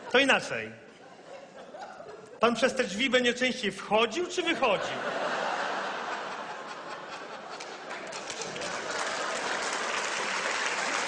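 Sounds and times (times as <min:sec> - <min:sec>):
audience applause: 0:07.1 - 0:11.0.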